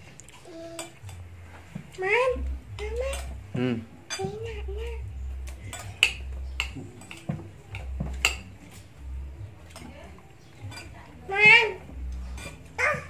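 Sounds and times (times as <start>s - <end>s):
spoons clinking against plates: 0.3s - 1.3s, 2.8s - 3.4s, 4.0s - 9.0s, 9.6s - 13.0s.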